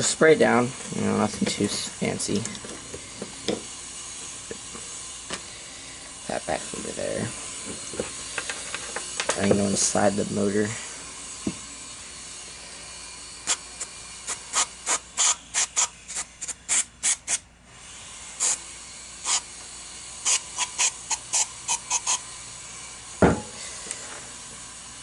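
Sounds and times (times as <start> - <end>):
aerosol spray bursts: 3.0 - 25.0
thump: 23.2 - 23.5.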